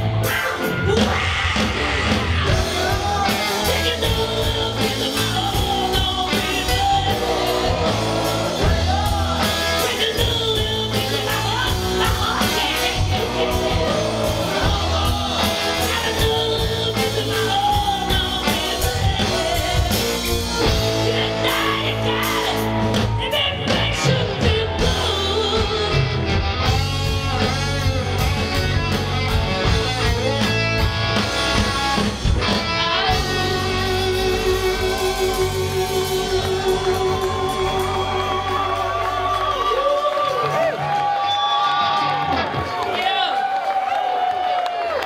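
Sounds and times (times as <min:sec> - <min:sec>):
live rock band playing: 0:00.0 - 0:43.3
woman singing: 0:02.7 - 0:26.2.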